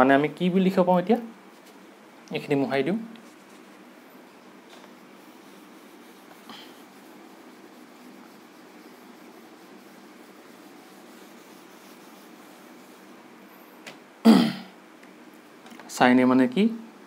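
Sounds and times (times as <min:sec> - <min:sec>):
duster rubbing on whiteboard: 0:04.7 - 0:13.8.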